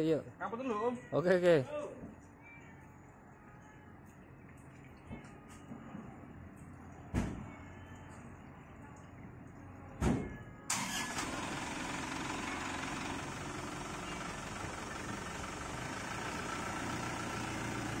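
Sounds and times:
truck engine starting and idling: 10.7s - 18.0s.

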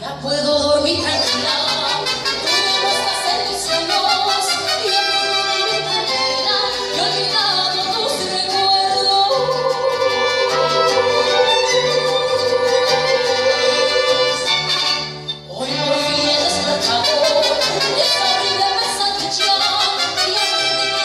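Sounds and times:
woman singing: 0.0s - 14.5s, 15.5s - 21.0s
violins playing melody: 1.0s - 8.8s, 9.4s - 21.0s
pulsing bass: 9.2s - 15.2s.

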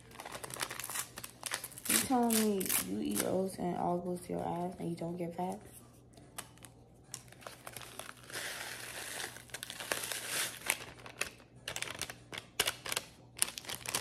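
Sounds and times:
paper packets crinkling: 0.0s - 3.4s, 6.2s - 14.0s.

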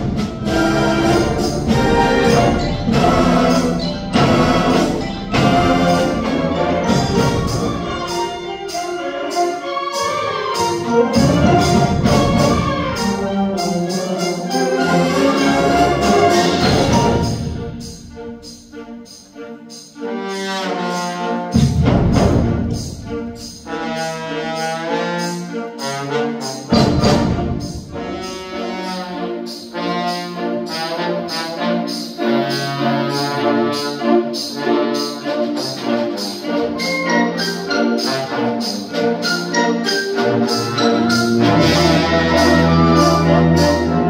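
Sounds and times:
concert band playing: 0.0s - 18.8s, 20.0s - 44.0s
sustained brass chords: 0.0s - 18.8s, 39.7s - 44.0s.

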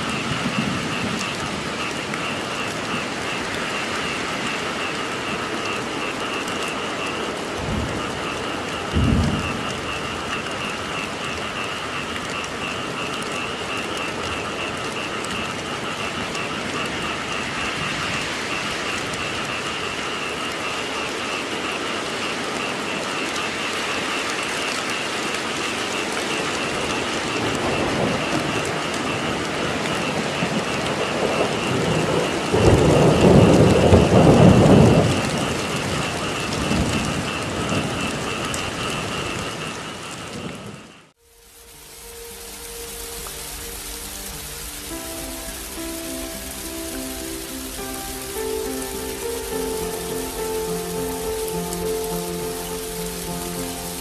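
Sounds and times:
thunder rumbling: 0.0s - 23.0s, 25.9s - 41.1s
heavy rain falling: 0.0s - 54.0s.

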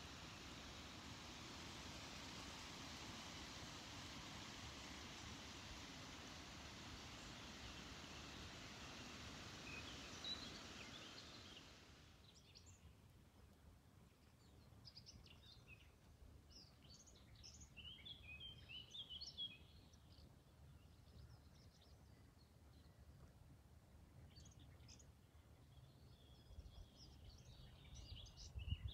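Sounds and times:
small birds chirping: 0.0s - 12.9s
soft hiss: 0.0s - 28.9s.

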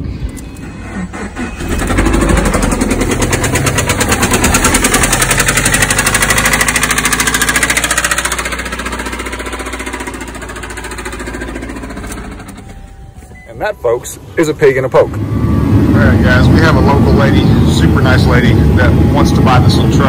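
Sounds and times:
engine running with rapid knocking: 0.8s - 13.0s.

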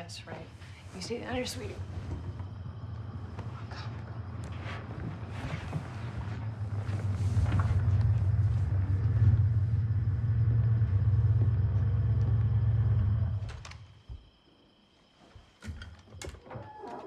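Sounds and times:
deep steady rumble: 0.2s - 13.7s.

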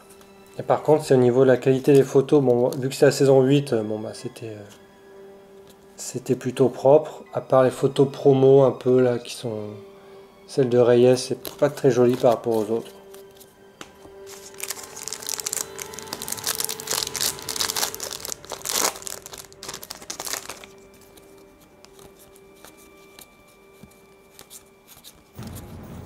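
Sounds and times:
faint handling of cards: 11.1s - 25.7s
card pack wrapper tearing and crinkling: 11.4s - 13.5s, 14.1s - 25.8s.

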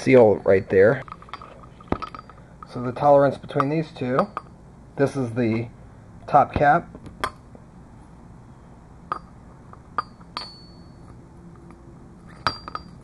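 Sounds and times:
light metallic clinks: 0.0s - 4.6s, 9.1s - 13.0s.

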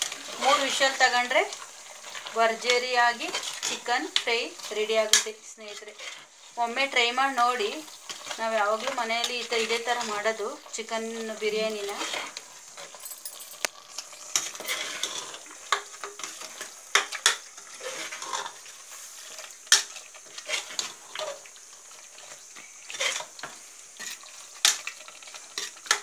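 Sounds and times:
food sizzling: 0.0s - 26.0s
metal spoon scraping a pot: 14.3s - 18.6s.

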